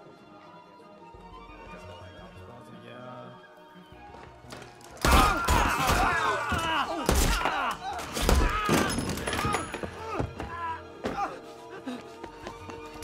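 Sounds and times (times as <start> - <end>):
film music score: 0.0 - 13.0
people shouting: 5.0 - 11.4.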